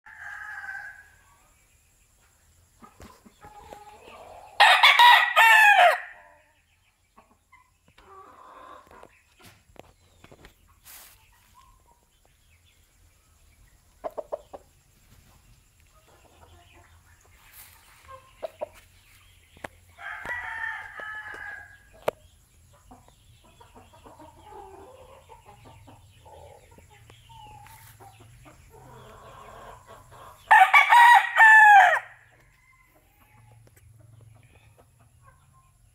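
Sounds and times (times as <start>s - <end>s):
rooster crowing: 0.1s - 1.1s, 4.6s - 6.2s, 20.0s - 21.8s, 30.5s - 33.2s
faint clucks: 14.0s - 14.7s.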